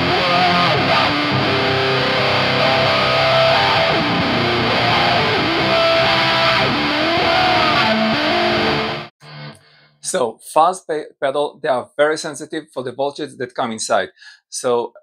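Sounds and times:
distorted electric guitar with wah: 0.0s - 10.1s.

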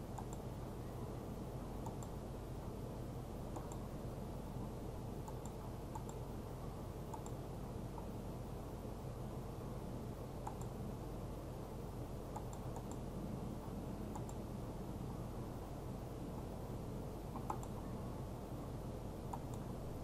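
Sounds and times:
low hum and hiss: 0.0s - 20.0s
faint clicks: 0.1s - 0.5s, 1.8s - 2.2s, 3.5s - 3.8s, 7.1s - 7.4s, 10.4s - 10.7s, 12.3s - 13.0s, 14.1s - 14.4s, 17.4s - 17.8s.

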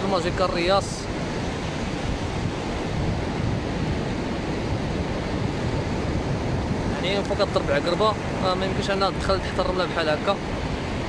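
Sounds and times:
ocean surf washing onto beach: 0.0s - 11.0s
wind buffeting microphone: 0.0s - 11.0s.

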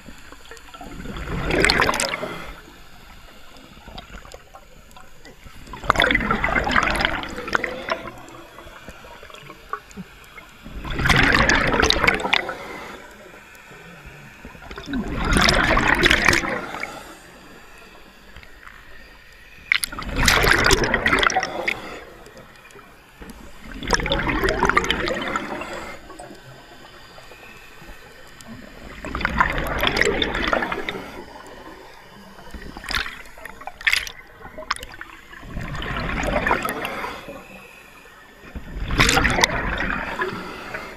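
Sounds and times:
diver exhaling bubbles: 0.8s - 2.7s, 5.6s - 9.5s, 10.8s - 13.1s, 14.6s - 17.1s, 19.8s - 22.1s, 23.6s - 26.3s, 28.9s - 31.4s, 32.5s - 37.3s, 38.7s - 40.9s.

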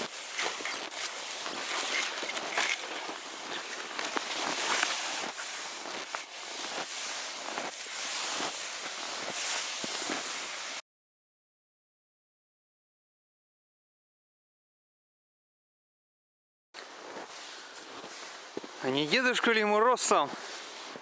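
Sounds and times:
skis sliding through snow: 0.0s - 10.8s, 16.8s - 21.0s.

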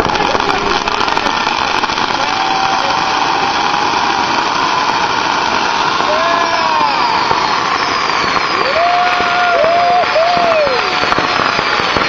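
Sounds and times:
firework fountain hissing: 0.0s - 12.0s
faint gliding whistle: 6.3s - 10.7s.

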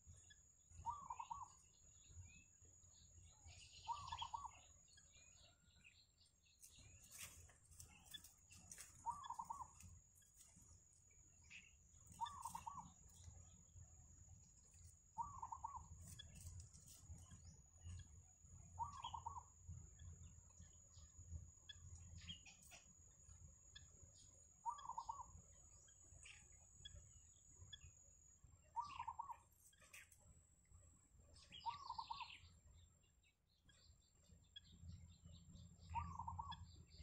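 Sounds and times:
faint wavering bird call: 15.2s - 15.9s.

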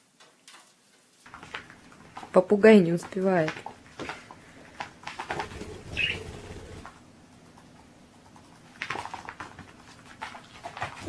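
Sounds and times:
cat paws tapping on wooden floor: 1.3s - 5.6s.

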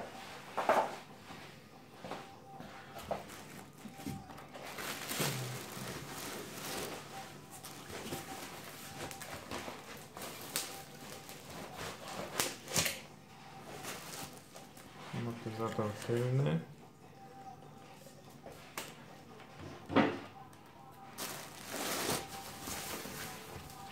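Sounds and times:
plastic wrap and foam rustling: 2.7s - 16.5s, 21.0s - 23.9s.

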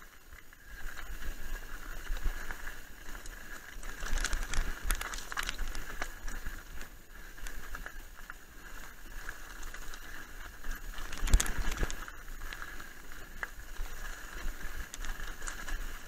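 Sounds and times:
bike rattling: 0.0s - 16.0s
bike tyres crunching over stones: 0.0s - 16.0s
bike knocking on rocks: 2.0s - 6.8s.

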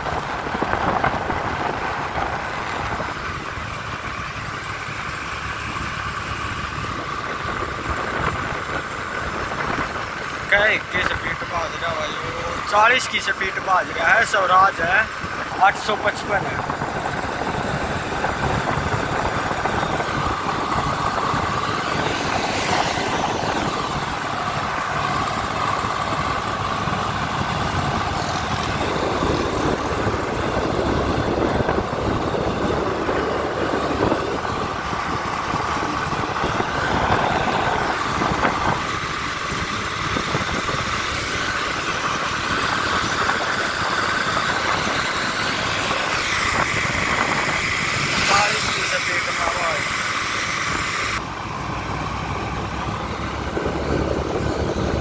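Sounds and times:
highway traffic noise: 0.0s - 55.0s
tractor engine: 0.0s - 55.0s.

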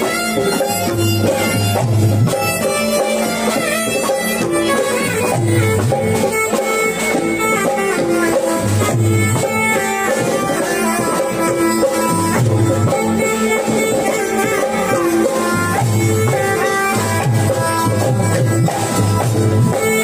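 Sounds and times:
drums: 0.0s - 20.0s
live folk dance band music: 0.0s - 20.0s.

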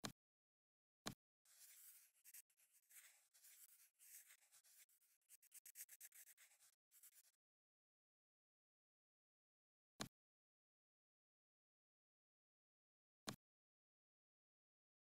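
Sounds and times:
scratchy stylus strokes on tablet: 1.5s - 7.4s.

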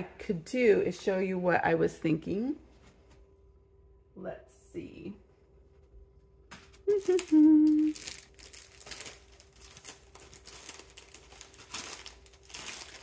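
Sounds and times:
woman humming: 6.8s - 8.1s
paper rustling and crinkling: 6.9s - 13.0s.

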